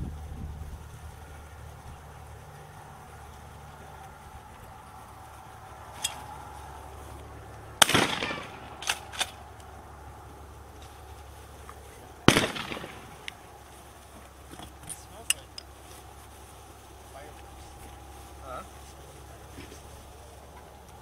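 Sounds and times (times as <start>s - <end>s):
faint cracks: 3.2s - 16.3s
shotgun shots with echo: 7.8s - 9.4s, 12.3s - 13.3s.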